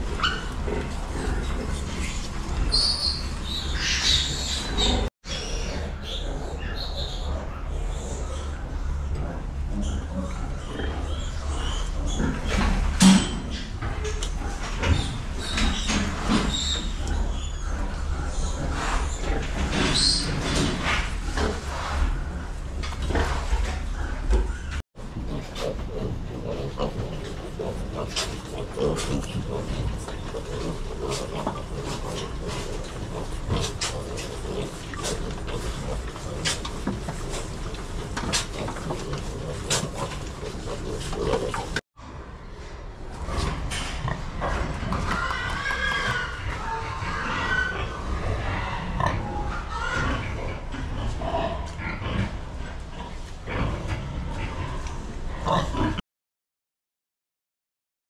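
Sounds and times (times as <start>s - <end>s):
low pig grunts: 0.0s - 2.7s, 23.0s - 41.8s, 46.0s - 56.0s.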